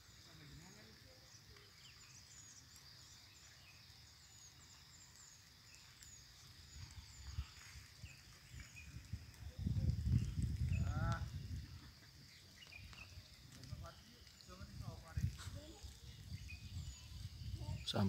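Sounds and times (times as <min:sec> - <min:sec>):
high insect drone: 0:00.0 - 0:18.0.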